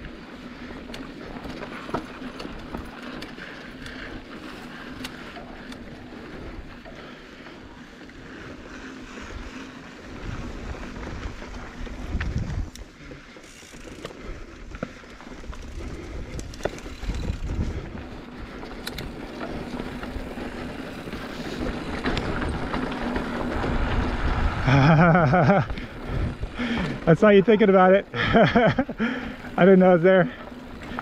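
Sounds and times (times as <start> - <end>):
bike clicks and rattles: 0.0 - 31.0
bike tyres rumbling on dirt: 0.0 - 31.0
wind on microphone: 10.2 - 12.8, 15.6 - 19.2, 23.5 - 26.7.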